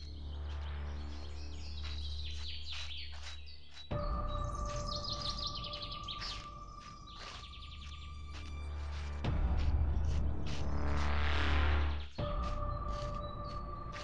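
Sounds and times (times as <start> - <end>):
birds chirping and trilling: 0.0 - 9.2, 9.9 - 14.0
low music drone: 3.2 - 14.0.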